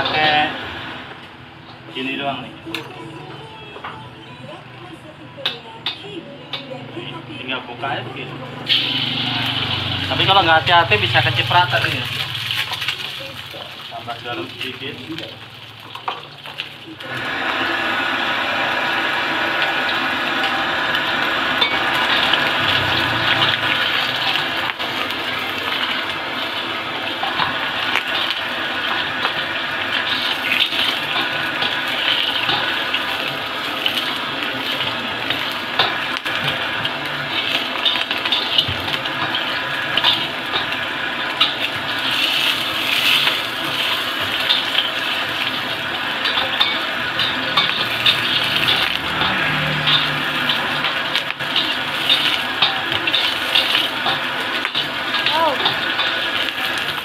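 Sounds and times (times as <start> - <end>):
egg sizzling in hot oil: 0.0 - 1.4, 8.6 - 57.0
spatula scraping wok: 8.5 - 57.0.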